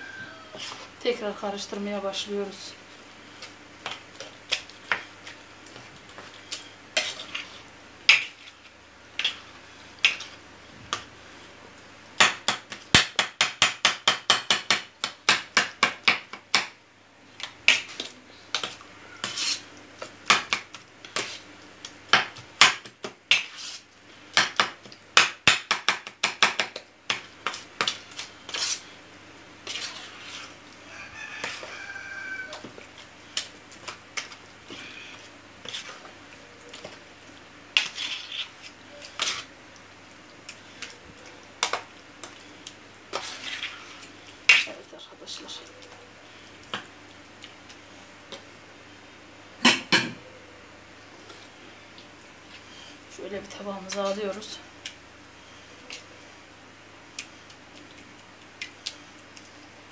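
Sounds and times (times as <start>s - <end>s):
metal spoon scraping a pan: 7.0s - 10.4s, 17.7s - 19.7s, 23.3s - 23.9s, 27.4s - 28.9s, 29.6s - 30.6s, 37.8s - 39.5s, 43.1s - 44.6s.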